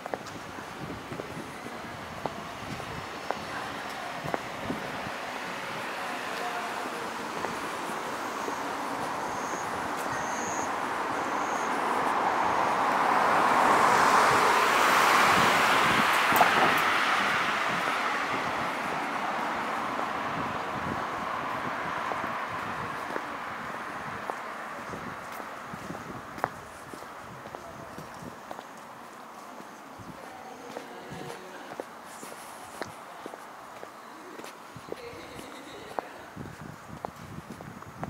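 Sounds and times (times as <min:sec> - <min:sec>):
vehicle passing: 0:00.7 - 0:28.2.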